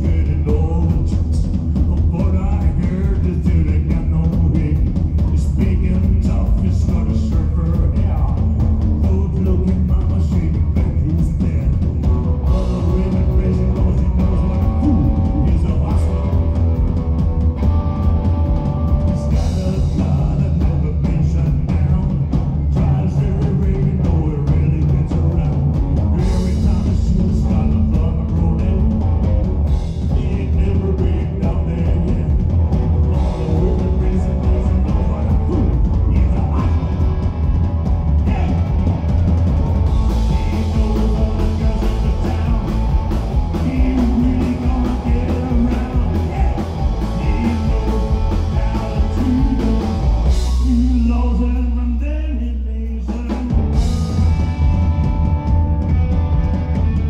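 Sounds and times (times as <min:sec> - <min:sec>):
man singing: 0:00.0 - 0:17.0, 0:18.8 - 0:39.0, 0:39.9 - 0:55.1
electric guitar: 0:00.0 - 0:52.4, 0:53.1 - 0:57.0
drum kit: 0:00.0 - 0:57.0
electric bass: 0:00.0 - 0:57.0.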